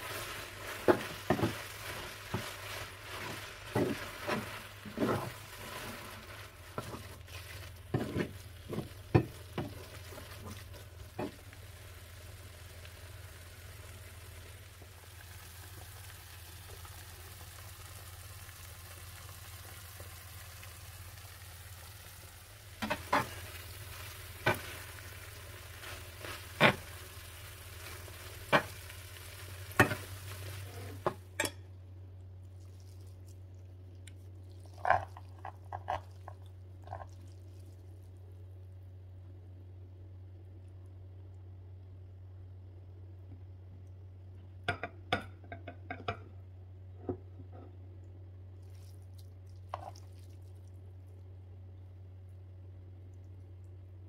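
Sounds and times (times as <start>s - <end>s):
spaghetti sizzling in frying pan: 0.0s - 31.6s, 34.5s - 37.8s.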